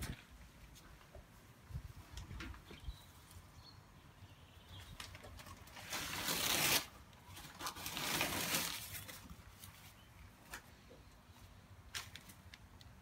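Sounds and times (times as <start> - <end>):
newspaper rustling and crumpling: 4.9 - 10.6.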